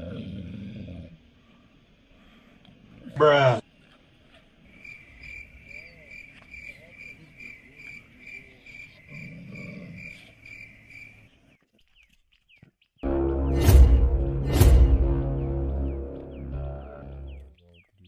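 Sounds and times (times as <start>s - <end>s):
cricket chirping: 4.6s - 11.4s.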